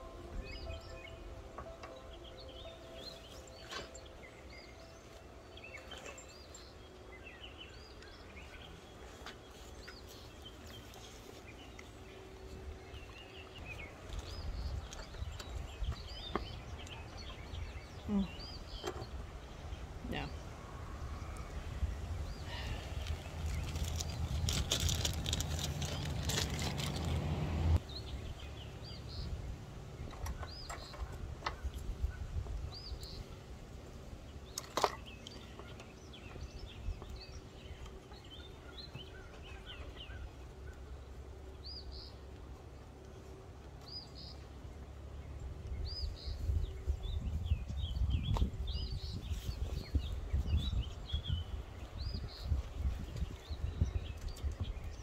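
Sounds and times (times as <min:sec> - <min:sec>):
small songbirds chirping: 0:00.0 - 0:27.2, 0:27.8 - 0:55.0
low rumbling noise: 0:00.0 - 0:34.5.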